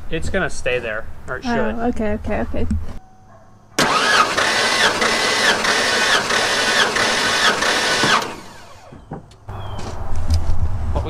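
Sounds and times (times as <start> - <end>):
engine cranking by starter motor: 3.8 - 9.1.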